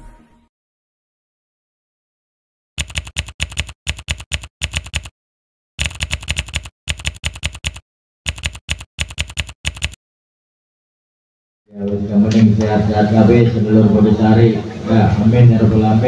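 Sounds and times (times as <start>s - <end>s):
rapid keystroke clicks: 2.8s - 5.1s, 5.8s - 10.0s.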